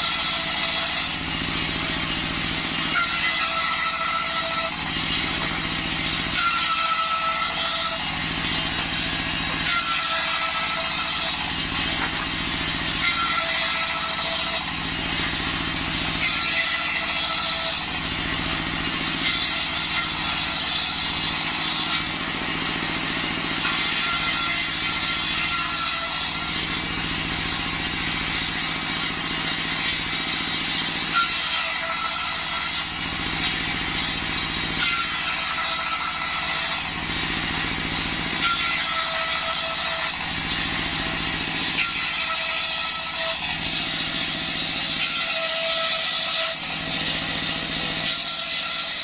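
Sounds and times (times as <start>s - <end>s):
circular saw cutting wood: 0.0s - 49.0s
diesel engine running: 1.1s - 2.9s, 4.8s - 6.4s, 8.0s - 10.4s, 11.4s - 13.0s, 14.7s - 16.2s, 17.8s - 23.9s, 26.3s - 31.1s, 36.9s - 38.4s, 40.2s - 41.8s, 43.4s - 45.0s, 46.6s - 48.1s.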